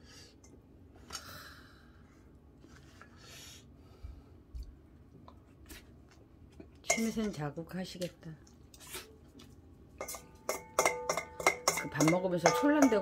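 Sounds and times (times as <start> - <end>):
hissy breath: 3.0 - 4.3
spoon scraping metal bowl: 10.0 - 13.0.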